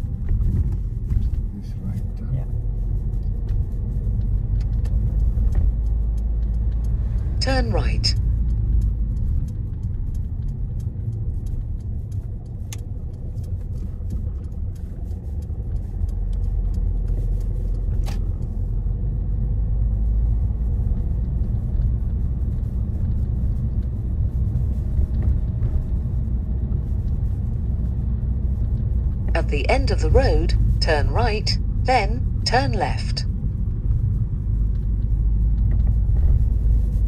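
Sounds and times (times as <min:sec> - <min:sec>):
car engine and road noise: 0:00.0 - 0:37.0
faint ticks: 0:03.1 - 0:07.4, 0:08.1 - 0:19.3.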